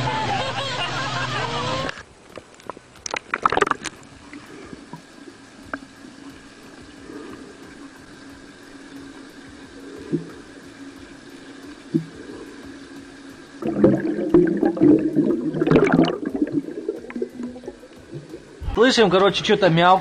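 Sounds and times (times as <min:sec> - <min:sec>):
underwater water hum: 0:00.0 - 0:20.0
low bubble puffs: 0:02.6 - 0:18.8
rush of bubbling: 0:03.0 - 0:18.8.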